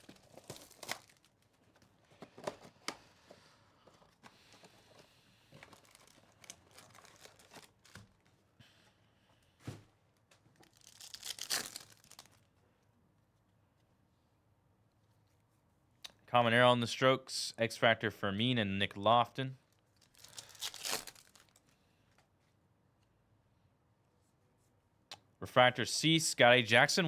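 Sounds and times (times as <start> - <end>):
foil packs crinkling and tearing: 0.0 - 1.5, 5.5 - 8.2, 10.6 - 12.4, 20.0 - 21.7.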